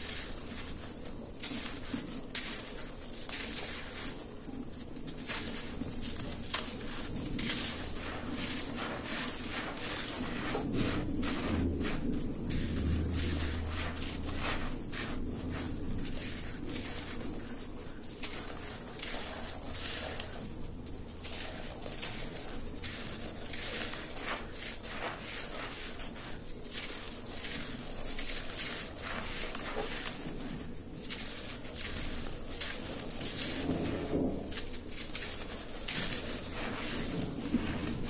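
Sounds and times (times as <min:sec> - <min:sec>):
dirt clods crumbling and crunching: 0:00.0 - 0:38.0
gritty soil scraping floor: 0:00.0 - 0:38.0
soil grains trickling: 0:00.0 - 0:38.0.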